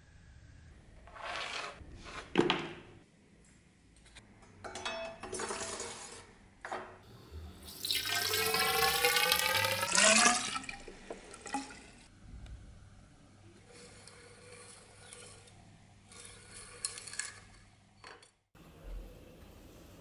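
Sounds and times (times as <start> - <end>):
liquid pouring into metal tube: 7.3 - 12.0.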